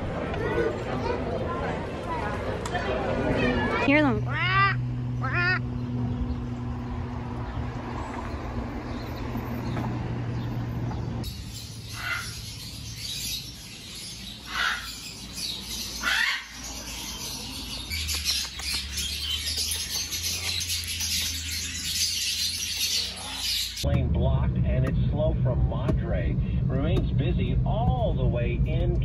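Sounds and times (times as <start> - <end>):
low street hum: 0.0 - 29.0
small birds chirping: 3.8 - 23.9
parrots squawking: 4.2 - 5.8, 11.2 - 23.8.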